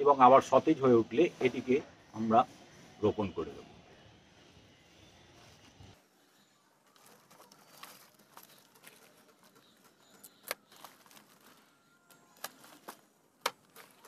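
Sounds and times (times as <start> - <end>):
packet rustling and crinkling: 6.2 - 14.0.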